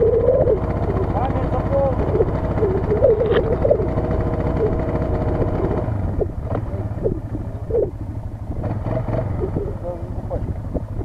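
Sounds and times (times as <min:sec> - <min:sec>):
indistinct voices: 0:00.0 - 0:08.0
quad bike engine running: 0:00.0 - 0:11.0.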